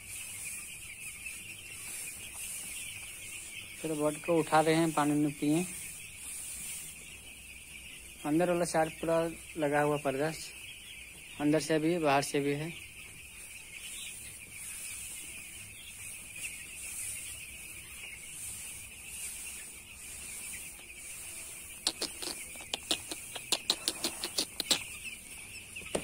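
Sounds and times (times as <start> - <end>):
chicks peeping: 0.0 - 26.0.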